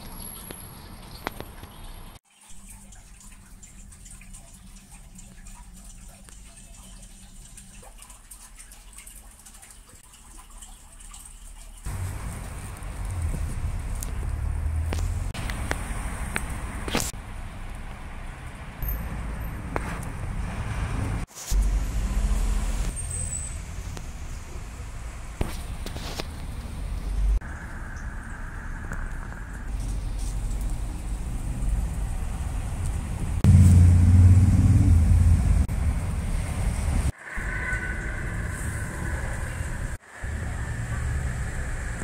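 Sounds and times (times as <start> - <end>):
vehicle engine rumbling: 11.9 - 42.0.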